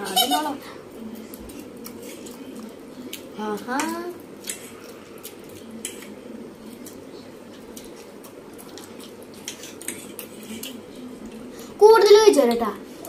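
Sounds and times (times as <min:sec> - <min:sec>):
low background hum: 0:00.0 - 0:13.0
noodles chewed and slurped: 0:00.9 - 0:11.5
forks clicking on plates: 0:01.4 - 0:06.2, 0:07.8 - 0:10.8.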